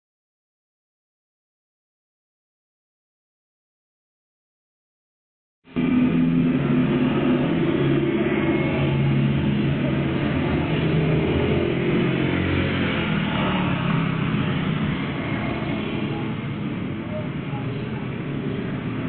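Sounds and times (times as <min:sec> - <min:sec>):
scooter engine passing: 0:05.8 - 0:19.0.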